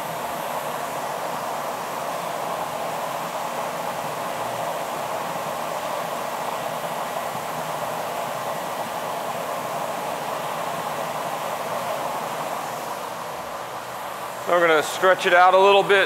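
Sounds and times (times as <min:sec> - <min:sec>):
furnace burner flame rushing: 0:00.0 - 0:16.0.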